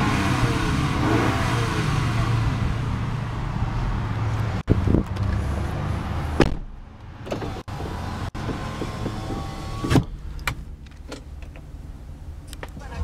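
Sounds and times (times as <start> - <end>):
thump: 6.4 - 7.5
power window motor whining: 7.3 - 10.2.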